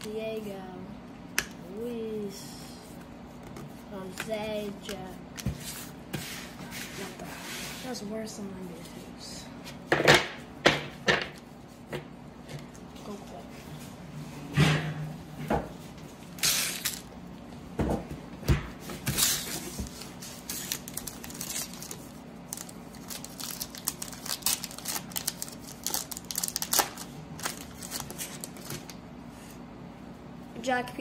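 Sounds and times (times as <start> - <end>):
wrapper tearing and crinkling: 16.4 - 17.1, 20.3 - 29.0.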